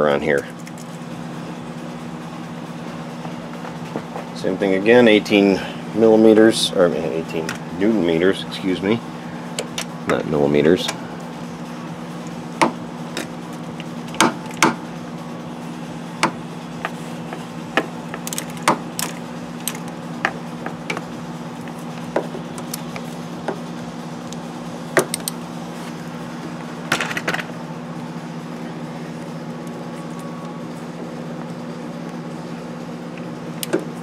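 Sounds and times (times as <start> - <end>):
low electrical hum: 0.0 - 34.0.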